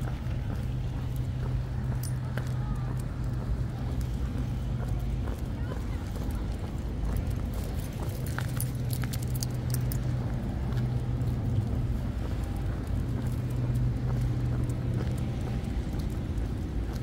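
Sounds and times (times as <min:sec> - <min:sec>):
distant engine drone: 0:00.0 - 0:17.0
light metallic jingles: 0:01.9 - 0:02.5, 0:07.5 - 0:10.2.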